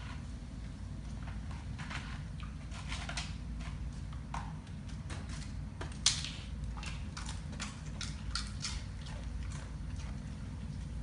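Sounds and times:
low steady hum: 0:00.0 - 0:11.0
dog claws clicking on tile: 0:01.8 - 0:10.2.

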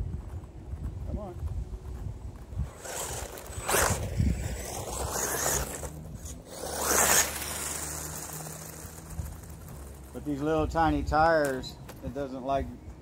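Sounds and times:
tyres scraping through grass: 0:00.2 - 0:12.3
rc car motor whirring: 0:02.4 - 0:11.2.

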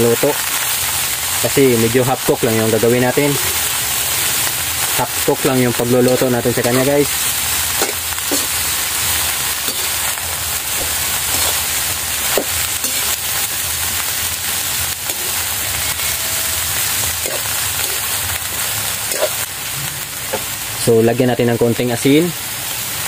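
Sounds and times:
greens sizzling in hot oil: 0:00.0 - 0:23.0
spatula scraping and knocking on wok: 0:07.8 - 0:08.7, 0:09.6 - 0:13.2, 0:15.0 - 0:18.2.

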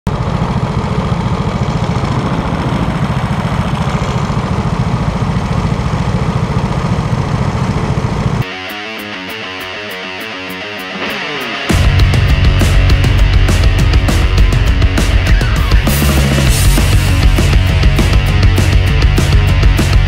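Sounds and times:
go-kart engines idling: 0:00.1 - 0:08.4
heavy metal music: 0:08.4 - 0:20.0.

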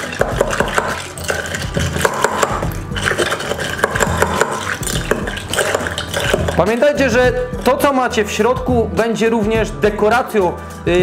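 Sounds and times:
ice clinking against glass: 0:00.0 - 0:07.0.

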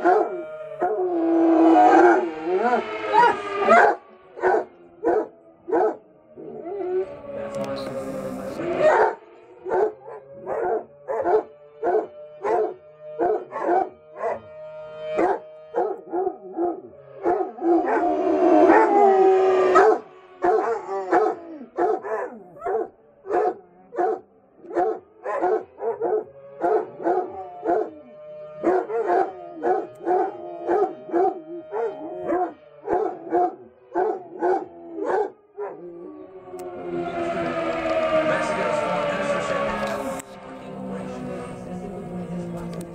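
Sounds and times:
dogs barking: 0:00.0 - 0:01.1, 0:01.7 - 0:06.7, 0:08.7 - 0:14.6, 0:15.2 - 0:19.1, 0:19.7 - 0:35.9
dog howling: 0:00.0 - 0:07.2, 0:08.8 - 0:14.5, 0:15.2 - 0:37.9
fire siren: 0:00.0 - 0:42.9.

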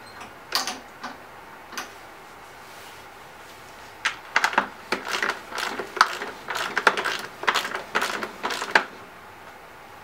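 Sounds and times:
ratcheting wrench clicking: 0:04.4 - 0:08.9.

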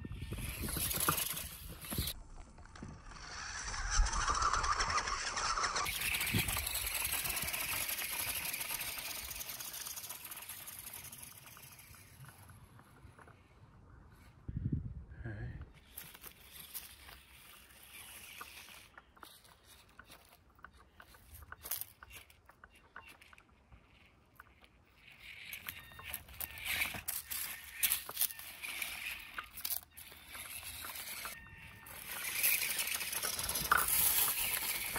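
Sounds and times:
rc car motor whirring: 0:00.0 - 0:13.5, 0:15.8 - 0:34.9
tyres clicking and scuffing on rock: 0:15.8 - 0:34.9.

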